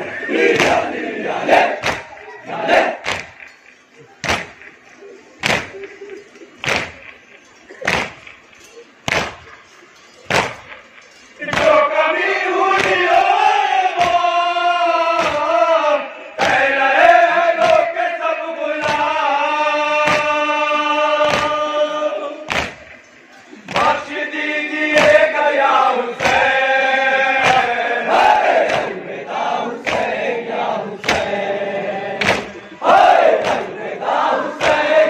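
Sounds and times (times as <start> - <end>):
men chanting in unison: 0.0 - 3.2, 11.4 - 22.8, 23.5 - 35.0
regular sharp beats: 0.0 - 35.0.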